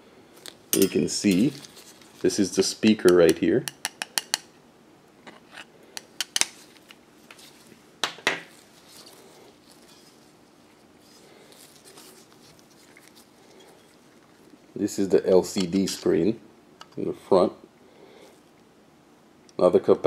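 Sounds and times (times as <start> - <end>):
handling rustling: 0.4 - 2.4, 6.5 - 14.8.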